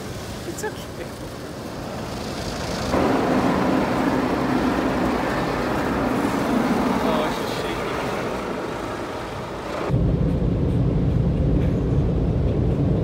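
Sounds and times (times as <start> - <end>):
automatic car wash rushing: 0.0 - 9.9.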